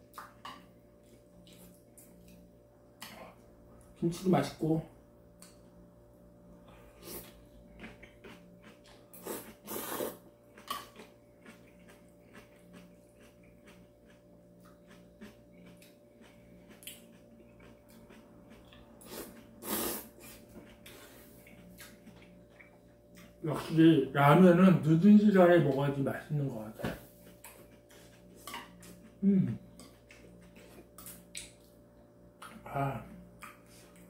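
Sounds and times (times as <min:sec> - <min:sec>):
steady low hum: 0:00.0 - 0:34.0
noodles being slurped: 0:09.1 - 0:10.2, 0:19.0 - 0:21.3.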